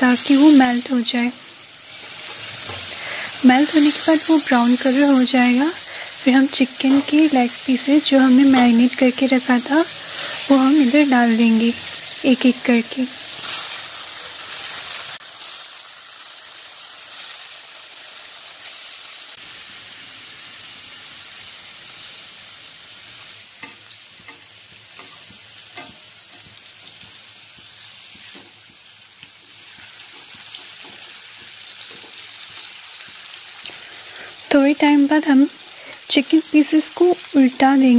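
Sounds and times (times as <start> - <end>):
chicken sizzling in butter: 0.0 - 37.9
metal spatula scraping pan: 23.6 - 26.6.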